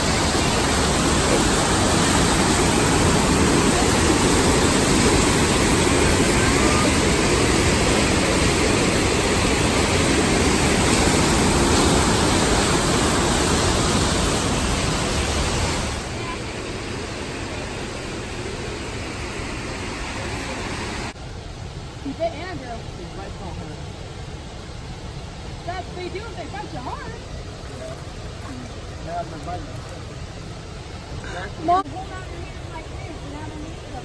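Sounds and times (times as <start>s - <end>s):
waterfall rushing over rocks: 0.0s - 34.0s.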